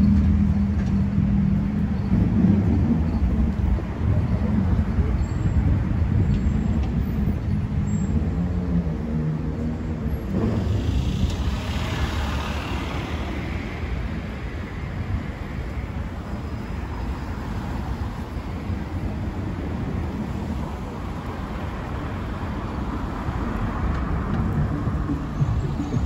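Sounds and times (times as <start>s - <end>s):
low rumble of engines: 0.0s - 26.0s
passing vehicle hiss: 10.0s - 26.0s.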